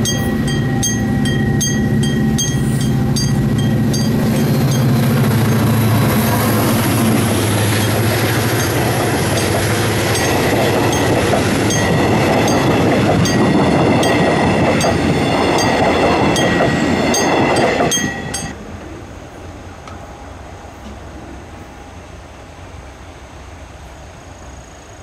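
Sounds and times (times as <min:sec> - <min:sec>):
train wheels clicking over track: 0:00.0 - 0:18.6
locomotive engine: 0:00.0 - 0:24.0.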